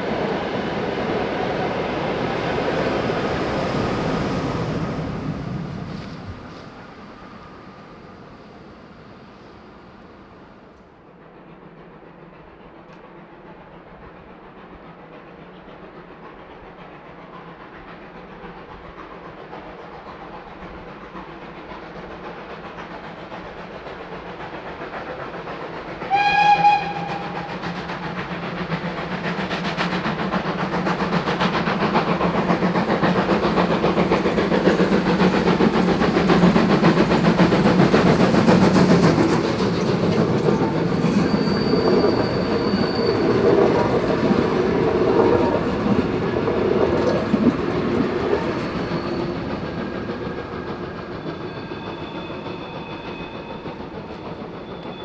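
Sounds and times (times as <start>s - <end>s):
steam locomotive passing: 0.0s - 55.0s
steam whistle blast: 26.0s - 27.6s.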